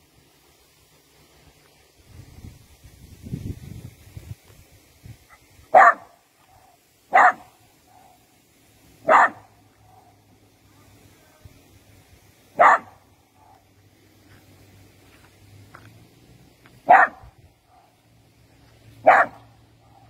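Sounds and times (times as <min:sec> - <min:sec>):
dog barking: 0:05.7 - 0:08.2, 0:09.0 - 0:10.2, 0:12.6 - 0:13.6, 0:16.8 - 0:18.0, 0:19.0 - 0:20.0.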